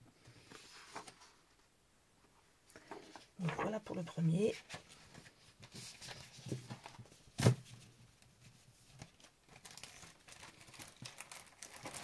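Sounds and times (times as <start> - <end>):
paper rustling: 0.3 - 1.6, 2.8 - 12.0.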